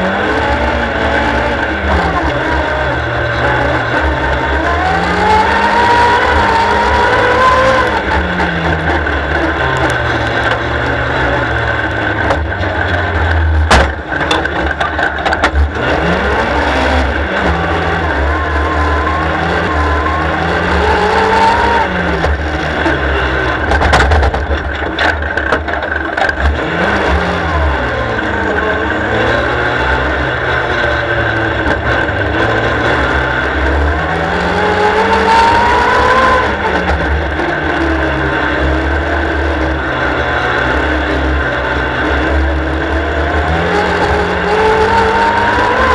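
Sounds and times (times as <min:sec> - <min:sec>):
car rattling: 0:00.0 - 0:45.9
race car engine running: 0:00.0 - 0:45.9.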